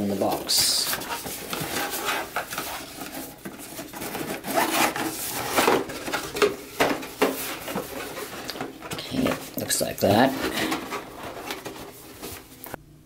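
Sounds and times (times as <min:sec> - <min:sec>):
cardboard rubbing and scraping: 0:00.3 - 0:12.6.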